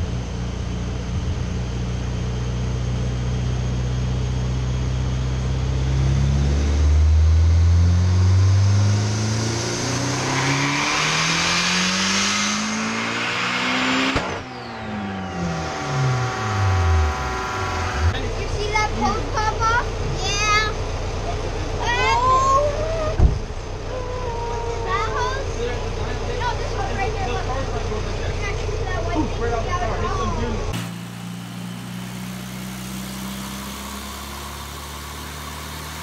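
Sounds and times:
car engine revving: 4.2 - 22.4, 24.9 - 36.0
sharp crack: 14.0 - 14.6.

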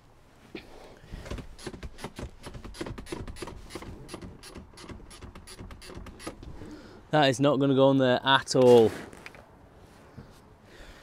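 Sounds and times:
seat lever ratchet clicks: 1.6 - 6.4.

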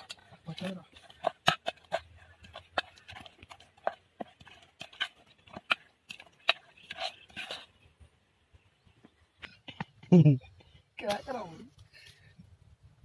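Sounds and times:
wet batter scraping: 0.0 - 8.4.

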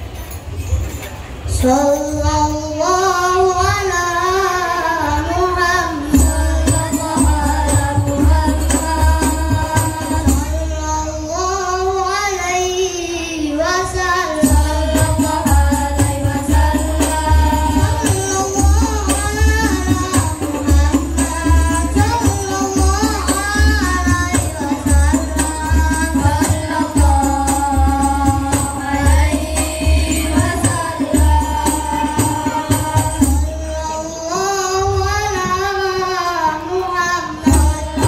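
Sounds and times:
boys singing: 1.5 - 38.0
hand drums and bass drum: 6.1 - 10.9, 14.4 - 33.9, 37.4 - 38.0.

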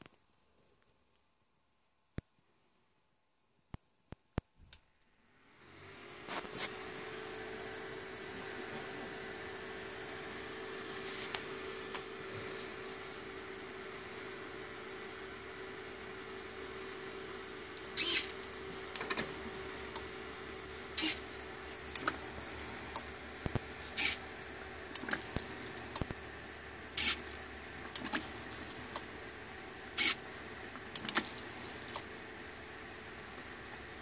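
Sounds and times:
servo whirring: 17.8 - 20.1, 20.9 - 24.3, 24.9 - 26.2, 26.9 - 29.1, 29.9 - 30.2, 30.8 - 32.1.

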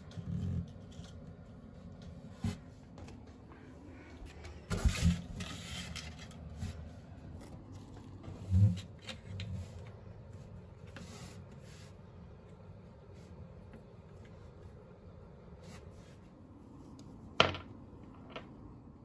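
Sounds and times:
objects knocking on tabletop: 17.4 - 18.6.

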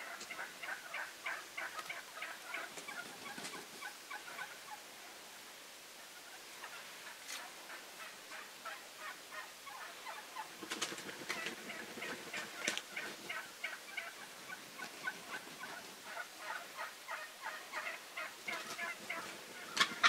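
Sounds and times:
turkey gobbles: 0.0 - 4.8, 6.2 - 20.0
wild turkeys calling: 0.0 - 4.9, 6.0 - 20.0.

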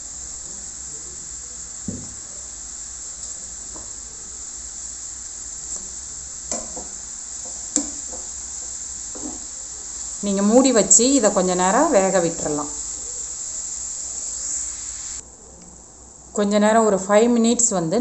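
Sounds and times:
carrot sizzling in pan: 0.0 - 15.2.

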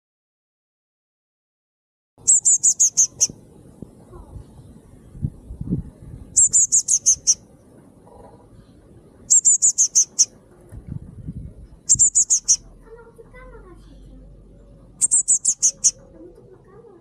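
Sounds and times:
bird chirping: 2.2 - 3.4, 6.1 - 7.5, 9.1 - 10.4, 11.8 - 12.8, 14.5 - 16.1.

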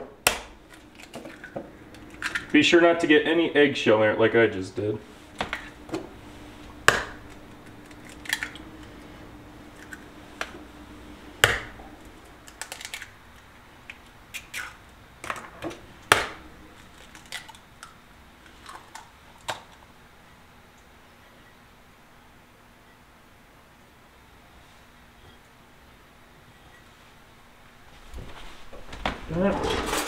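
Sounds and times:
eggshells cracking: 0.2 - 2.6, 6.7 - 8.9, 9.7 - 10.6, 11.4 - 15.4, 16.0 - 19.9.

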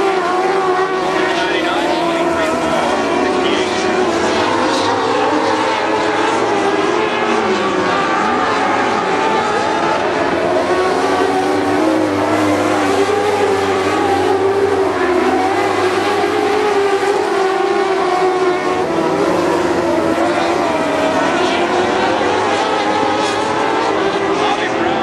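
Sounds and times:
race car engines revving: 0.0 - 25.0.

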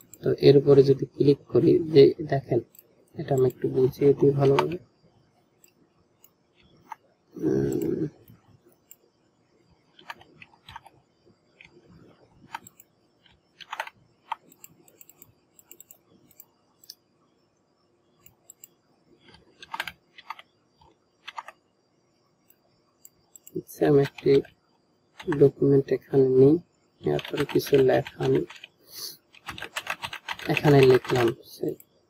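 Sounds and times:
computer mouse clicks: 0.0 - 0.3, 9.9 - 11.0, 12.4 - 17.0, 18.2 - 21.6, 22.4 - 24.5, 27.2 - 31.9.

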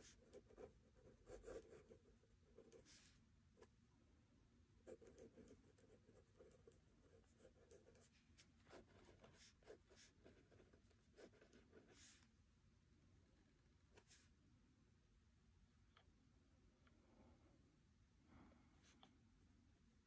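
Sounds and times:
pen scratching on paper: 0.0 - 3.2, 4.9 - 12.2.

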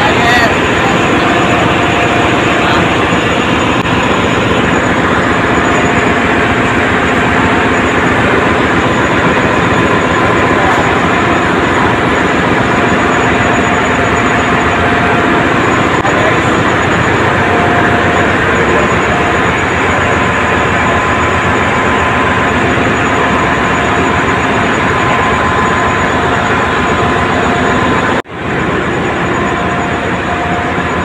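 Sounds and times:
engine-room machinery din: 0.0 - 31.0
faint steady whines: 0.0 - 31.0.

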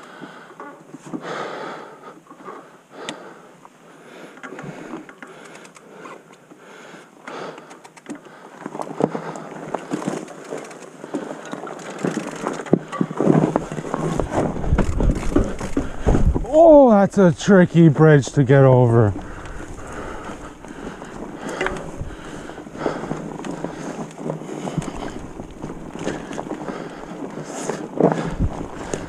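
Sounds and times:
bike clicks and rattles: 4.3 - 6.6, 7.2 - 17.5, 18.2 - 29.0
tyres crunching over leaves: 8.6 - 29.0.

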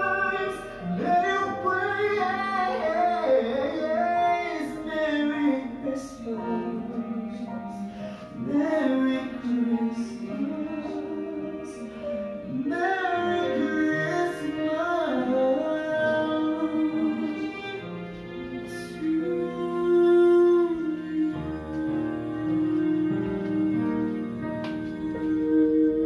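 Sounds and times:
sustained instrumental accompaniment: 0.0 - 26.0.

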